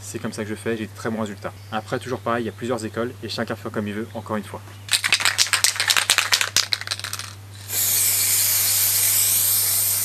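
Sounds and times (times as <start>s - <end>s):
spray can ball rattling: 4.9s - 10.0s
spray paint hissing: 5.3s - 10.0s.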